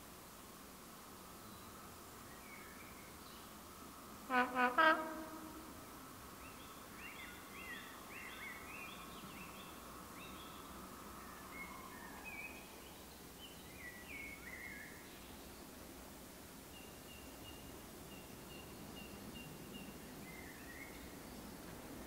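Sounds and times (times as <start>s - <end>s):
songbirds singing: 1.4s - 3.6s, 5.8s - 15.8s, 16.6s - 21.7s
distant locomotive hum: 3.8s - 6.4s.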